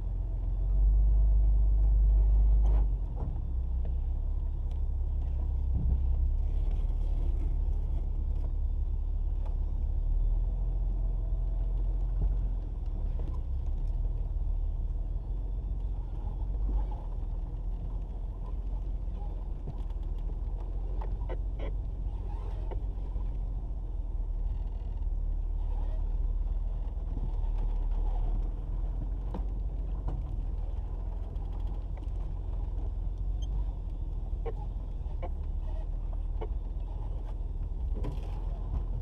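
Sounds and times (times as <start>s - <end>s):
engine and tyres rumbling: 0.0s - 39.0s
knocks and rattles over bumps: 26.4s - 39.0s.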